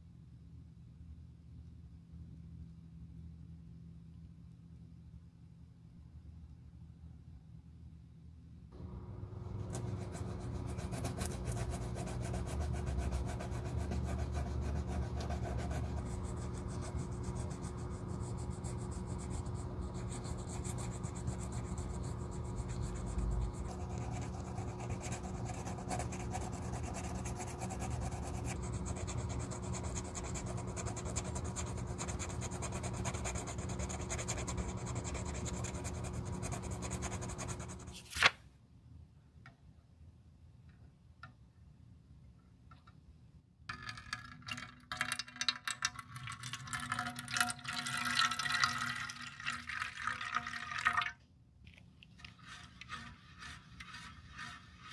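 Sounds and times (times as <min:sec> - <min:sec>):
sandpaper scratchy rubbing: 0:09.8 - 0:38.1, 0:52.2 - 0:54.9.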